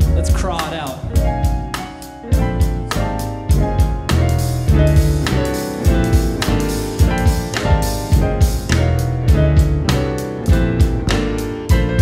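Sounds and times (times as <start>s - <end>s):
drum kit: 0.0s - 12.0s
grand piano chords: 0.0s - 12.0s
upright bass: 0.0s - 12.0s.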